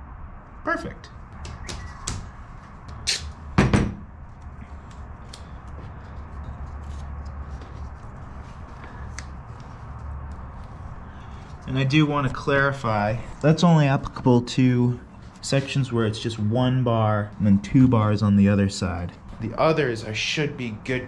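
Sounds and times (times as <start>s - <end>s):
steady low hum: 0.0s - 21.0s
louder knock: 3.6s - 4.0s.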